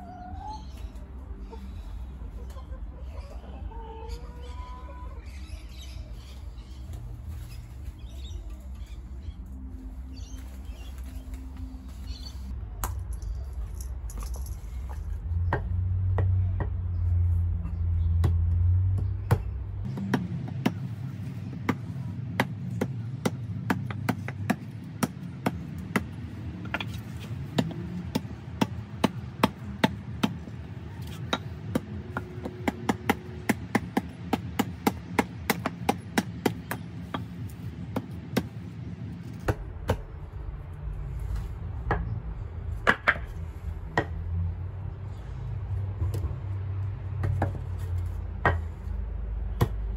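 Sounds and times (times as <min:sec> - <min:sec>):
hatchet chopping wood: 0:18.2 - 0:20.9, 0:21.6 - 0:37.3, 0:37.9 - 0:38.6, 0:49.5 - 0:49.8
low rumble: 0:39.0 - 0:49.9.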